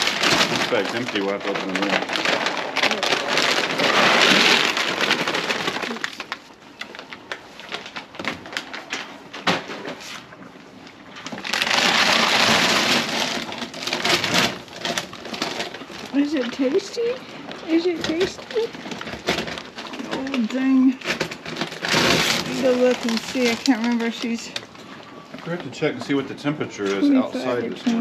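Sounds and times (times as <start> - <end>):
pellets pouring into feeder: 0.0 - 6.4, 11.4 - 19.2, 21.0 - 24.5.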